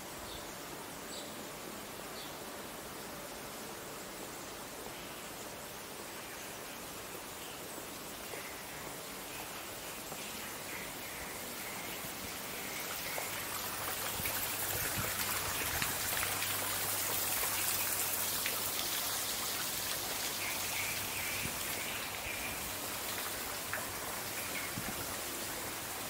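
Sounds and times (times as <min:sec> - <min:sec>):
fountain water splashing: 0:08.8 - 0:26.0.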